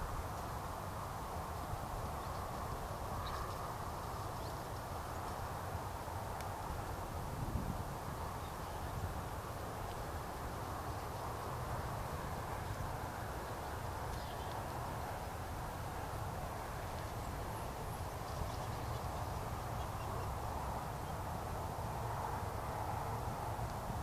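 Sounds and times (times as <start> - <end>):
small birds chirping: 13.4 - 14.8, 17.2 - 21.2.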